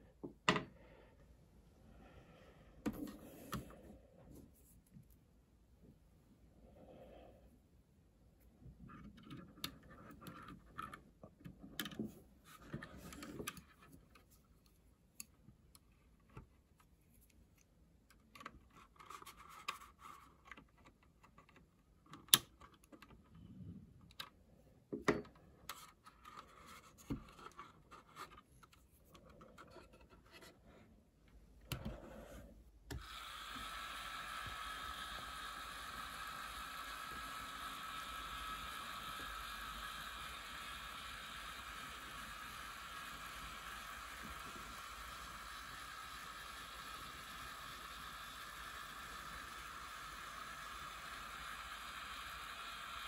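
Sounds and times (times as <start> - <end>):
plastic model handling noises: 8.8 - 23.4, 25.0 - 33.2
small electric motors whirring: 32.9 - 53.0.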